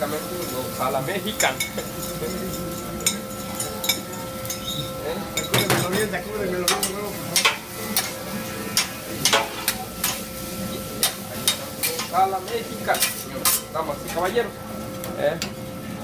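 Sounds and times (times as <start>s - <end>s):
metal spatulas scraping a griddle: 6.7s - 10.2s, 11.0s - 14.3s.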